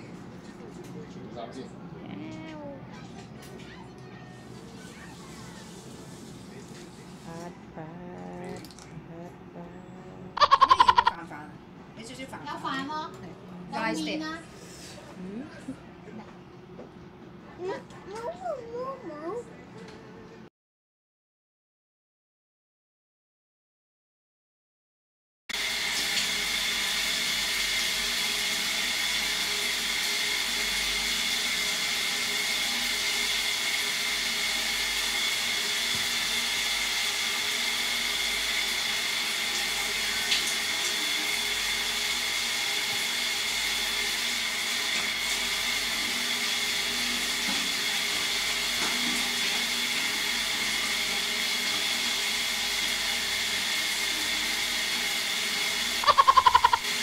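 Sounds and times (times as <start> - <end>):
shower water spray hissing: 51.8 - 57.0.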